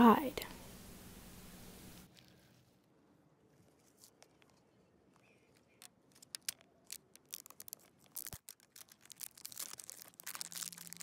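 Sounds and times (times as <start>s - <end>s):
cardboard packaging pulled apart: 6.1s - 11.0s.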